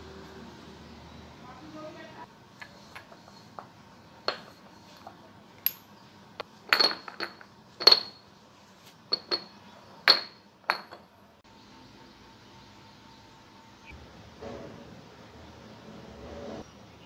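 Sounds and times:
ceramic jars and lids clinking: 0:02.6 - 0:05.9, 0:06.7 - 0:08.3, 0:09.1 - 0:11.1.

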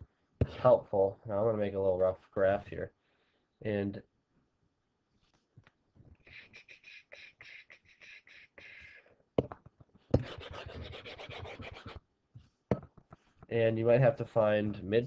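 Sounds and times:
eraser rubbing: 0:10.2 - 0:12.0
pen scratching on paper: 0:10.2 - 0:12.0.

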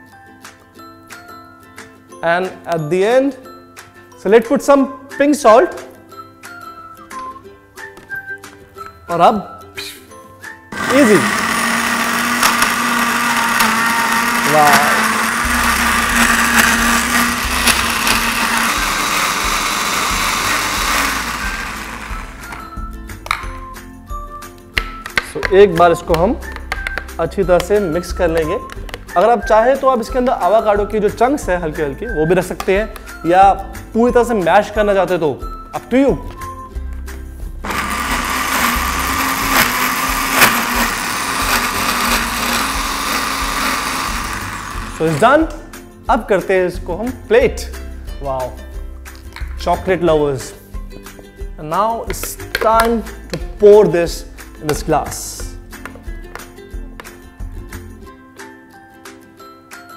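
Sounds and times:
electric blender running: 0:10.7 - 0:22.8, 0:37.6 - 0:45.5.

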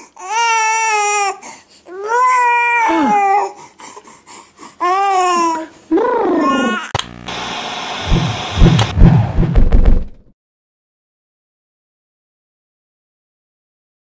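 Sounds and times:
baby crying: 0:00.2 - 0:03.6, 0:04.8 - 0:07.0.

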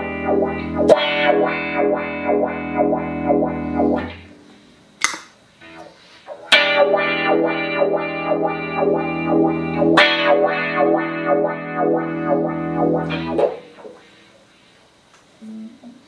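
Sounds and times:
electric guitar chord with wah: 0:00.0 - 0:04.4, 0:05.6 - 0:14.0.

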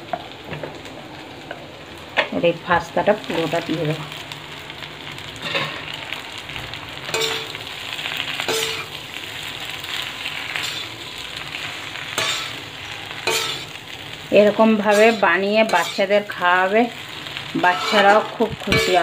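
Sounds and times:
food sizzling in a pan: 0:00.0 - 0:19.0
spatula scraping a pan: 0:05.4 - 0:05.9, 0:07.1 - 0:09.0, 0:09.9 - 0:13.8, 0:14.4 - 0:19.0.

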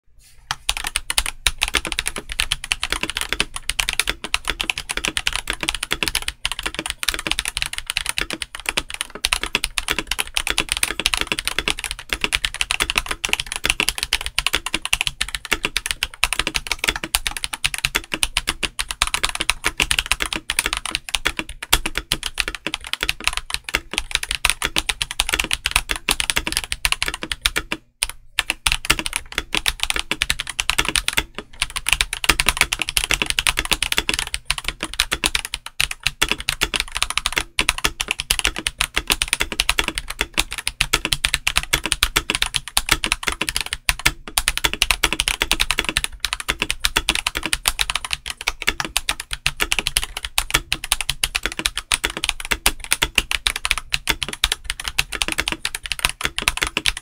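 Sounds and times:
mechanical keyboard typing: 0:00.5 - 0:57.0.

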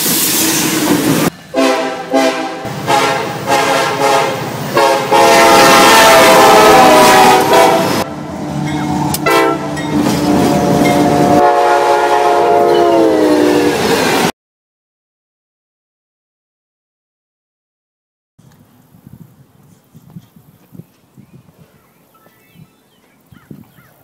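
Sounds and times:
passing train rumble: 0:00.0 - 0:14.3
locomotive air horns: 0:01.5 - 0:08.3, 0:09.1 - 0:13.8.

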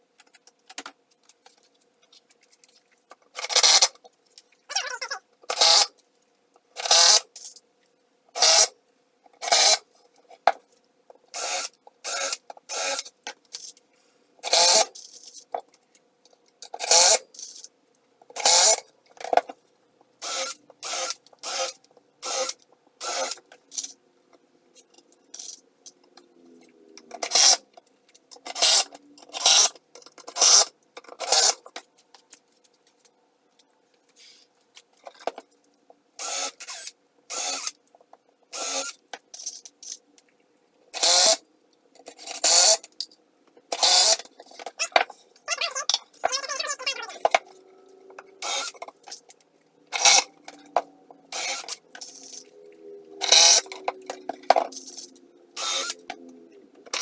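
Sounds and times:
impact driver driving screws: 0:03.4 - 0:04.0, 0:09.4 - 0:09.8, 0:20.2 - 0:23.9, 0:38.6 - 0:39.5, 0:43.7 - 0:44.3, 0:49.9 - 0:50.3, 0:51.3 - 0:52.4, 0:53.2 - 0:53.7, 0:54.6 - 0:56.0
cordless drill boring into plywood: 0:08.4 - 0:08.7, 0:11.4 - 0:13.1, 0:14.4 - 0:14.9, 0:18.4 - 0:18.8, 0:20.2 - 0:23.4, 0:36.2 - 0:37.7, 0:38.5 - 0:39.0, 0:41.0 - 0:41.4, 0:43.8 - 0:44.2, 0:48.4 - 0:48.8, 0:51.3 - 0:51.8, 0:53.2 - 0:53.7, 0:55.6 - 0:56.0.

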